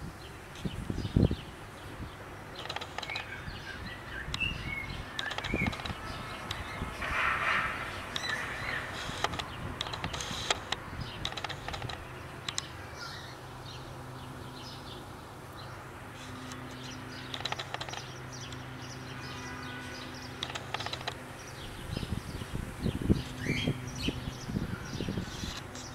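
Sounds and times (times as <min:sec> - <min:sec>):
bird chirp: 0:00.2 - 0:25.9
small clicks and ticks: 0:02.5 - 0:03.4, 0:05.1 - 0:07.1, 0:08.1 - 0:12.7, 0:16.2 - 0:18.9, 0:20.0 - 0:21.3.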